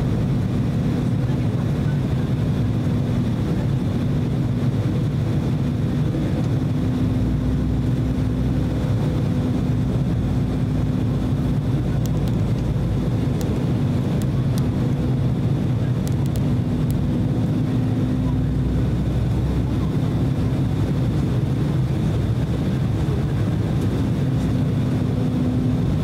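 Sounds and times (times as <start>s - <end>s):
airflow over fuselage: 0.0s - 26.0s
jet engines roaring: 0.0s - 26.0s
faint clicks: 16.0s - 17.0s.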